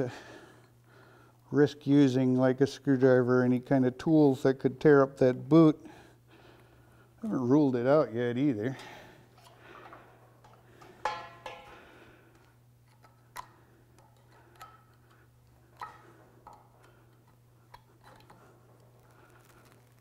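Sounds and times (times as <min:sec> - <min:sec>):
steady low hum: 0:00.0 - 0:20.0
hands handling metal parts clicking: 0:12.3 - 0:19.6.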